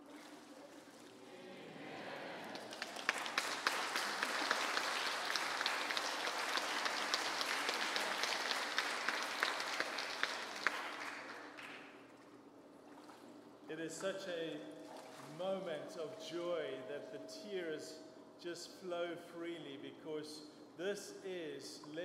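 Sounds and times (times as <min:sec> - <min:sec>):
congregation applauding: 0:01.3 - 0:11.9.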